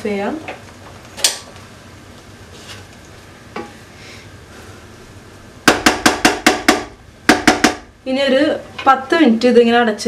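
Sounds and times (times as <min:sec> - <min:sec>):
wooden spatula knocking on pot: 0:05.6 - 0:07.9.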